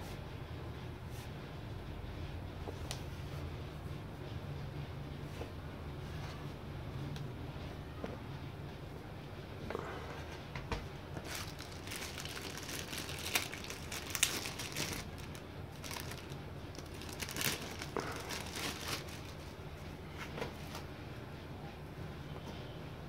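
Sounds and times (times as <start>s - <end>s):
plastic bag crinkling: 11.2s - 19.6s.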